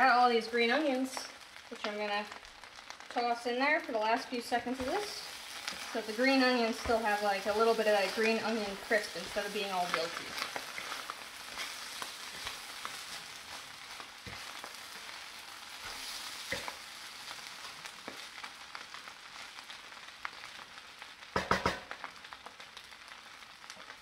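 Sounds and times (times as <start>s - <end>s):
rice sizzling in a pan: 0.0s - 24.0s.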